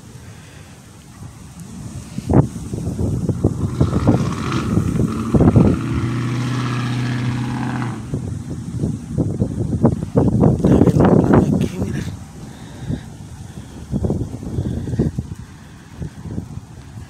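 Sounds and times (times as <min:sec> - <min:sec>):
vehicle engine running: 0:01.2 - 0:11.2.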